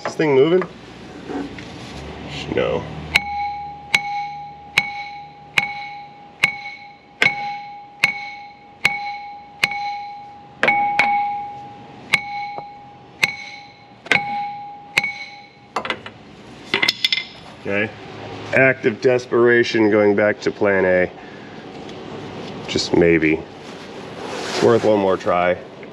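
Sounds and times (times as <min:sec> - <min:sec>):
hammer striking metal pulley: 0:03.1 - 0:15.9.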